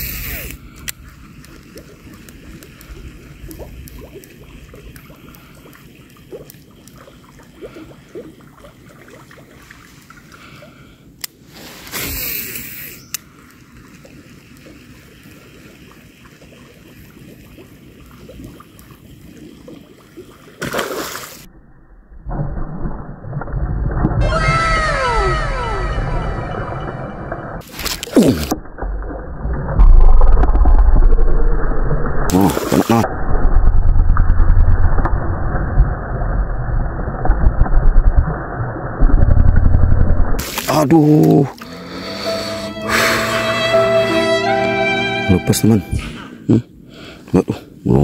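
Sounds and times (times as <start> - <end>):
splashing on water: 40.4 - 41.7.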